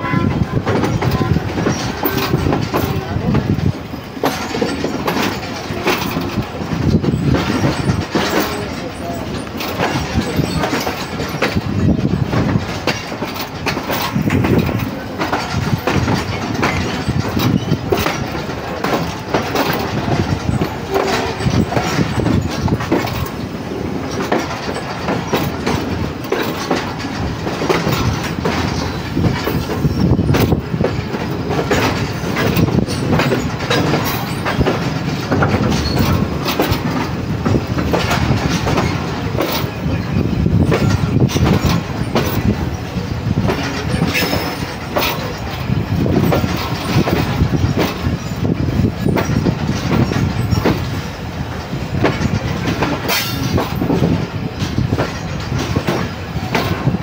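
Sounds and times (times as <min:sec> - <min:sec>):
train running rumble: 0:00.0 - 0:57.0
train wheels clattering over rails: 0:00.0 - 0:57.0.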